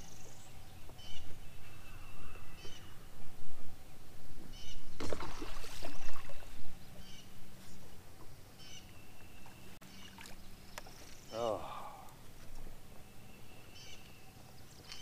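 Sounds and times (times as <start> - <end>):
bird chirping: 6.8 - 11.4, 12.9 - 15.0.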